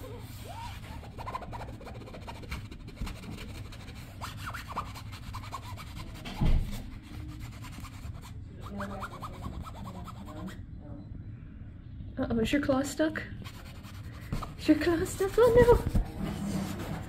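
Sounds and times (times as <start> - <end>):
fingertips scratching fabric: 0.0 - 10.6, 13.4 - 17.0
kitten paw batting fabric: 14.4 - 17.0.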